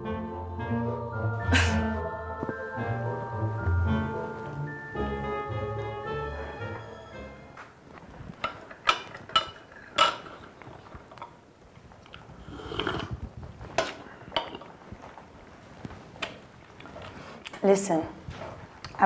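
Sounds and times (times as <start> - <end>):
china teacups clinking: 8.4 - 11.4
sip from a teacup: 12.0 - 14.8.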